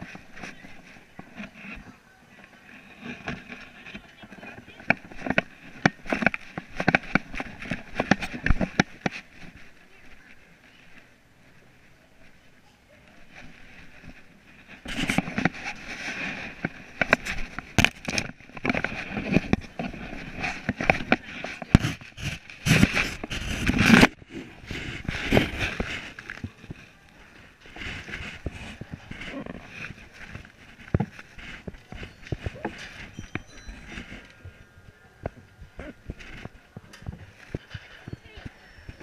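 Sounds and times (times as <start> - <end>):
camera rubbing and knocking: 0.0 - 11.1, 13.1 - 39.0.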